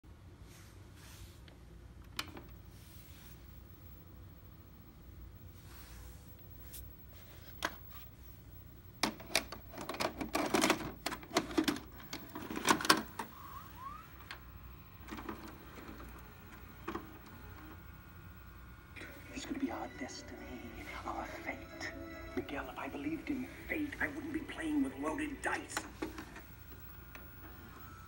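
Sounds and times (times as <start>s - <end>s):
tape mechanism clicks and clunks: 9.0s - 18.0s, 25.5s - 28.0s
motor whine: 13.0s - 20.2s.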